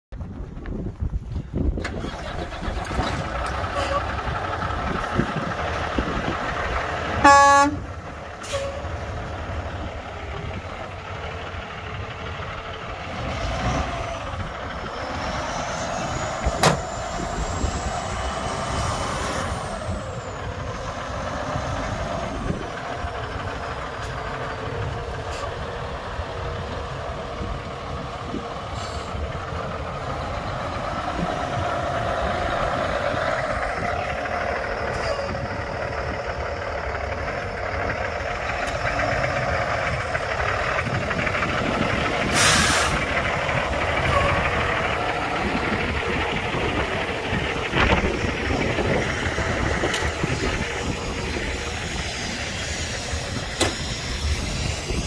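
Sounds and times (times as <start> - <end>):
diesel truck engine running: 0.1 - 55.0
truck horn blast: 7.1 - 8.8.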